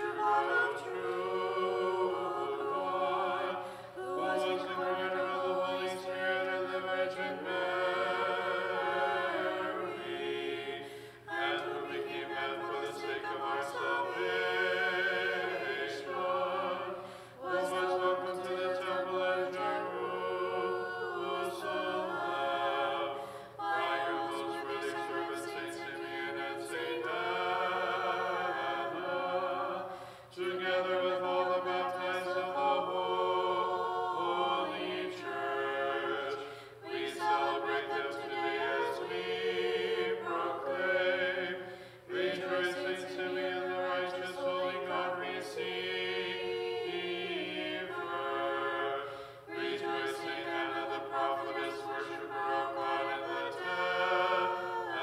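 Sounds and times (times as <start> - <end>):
choir chanting a cappella: 0.0 - 55.0
singers breathing: 3.6 - 4.0, 10.8 - 11.3, 17.0 - 17.4, 23.1 - 23.6, 29.9 - 30.4, 36.4 - 36.8, 41.6 - 42.1, 49.0 - 49.5.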